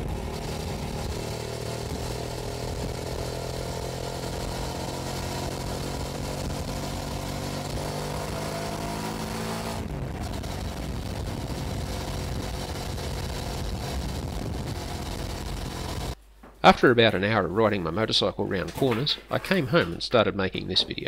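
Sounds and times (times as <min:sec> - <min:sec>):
motorcycle engine running: 0:00.0 - 0:16.2.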